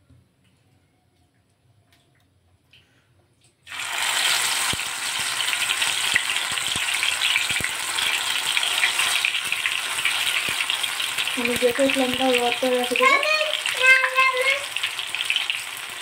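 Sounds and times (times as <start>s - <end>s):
batter sizzling in hot oil: 3.7s - 16.0s
crackling oil pops: 6.1s - 7.8s.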